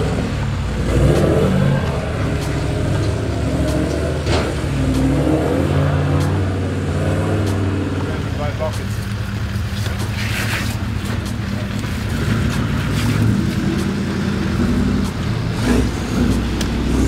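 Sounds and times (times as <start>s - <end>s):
creek rushing: 0.0s - 17.0s
diesel engine at low revs: 0.0s - 17.0s.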